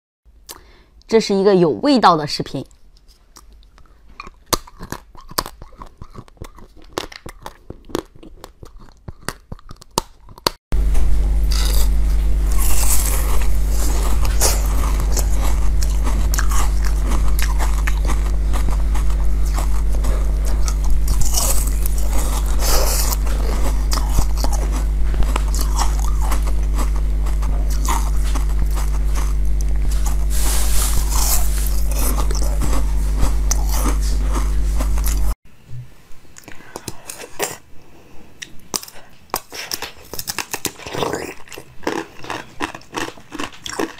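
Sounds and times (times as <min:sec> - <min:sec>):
crisp crunching and chewing: 0:03.0 - 0:10.6, 0:11.4 - 0:35.4, 0:38.4 - 0:43.9
steady low hum: 0:10.7 - 0:39.4.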